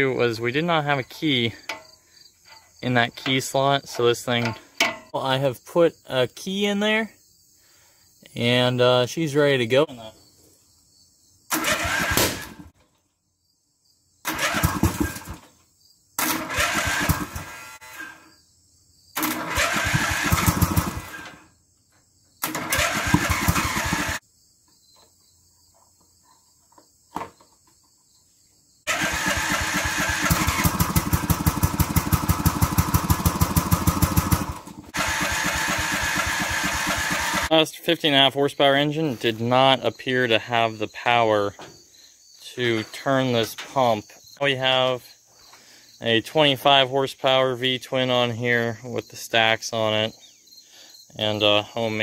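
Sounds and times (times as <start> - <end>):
engine cranking and running: 11.5 - 12.7, 14.3 - 15.4, 16.2 - 18.1, 19.2 - 21.4, 22.4 - 24.2, 28.9 - 37.5.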